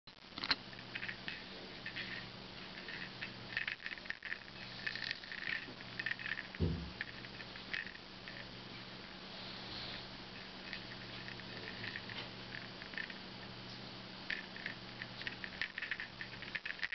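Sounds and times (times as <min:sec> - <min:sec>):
low steady hum: 0:00.1 - 0:16.9
dull thump: 0:06.6 - 0:07.0.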